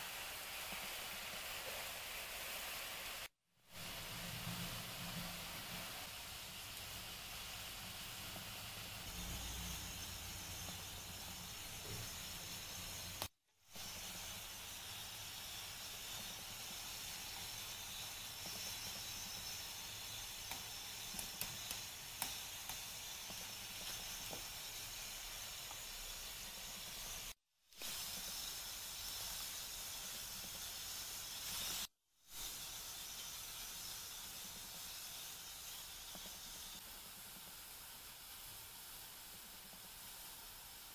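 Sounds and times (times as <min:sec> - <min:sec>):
sauce simmering in a frying pan: 0:00.0 - 0:40.9.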